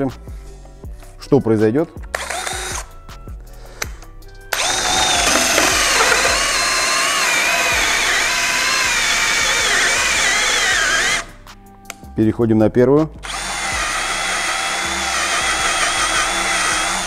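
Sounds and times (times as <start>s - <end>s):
background music: 0.0s - 17.0s
hole saw rasping in wood: 4.6s - 6.6s
drill motor whining: 4.6s - 11.2s, 13.3s - 17.0s.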